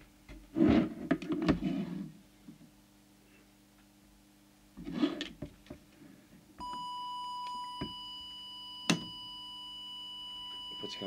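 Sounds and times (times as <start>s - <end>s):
steady test tone: 6.6s - 11.0s.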